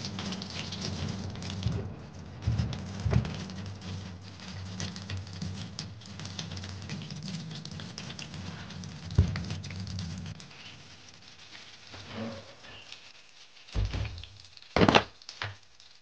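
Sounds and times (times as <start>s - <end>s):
sharp thump: 13.8s - 14.2s.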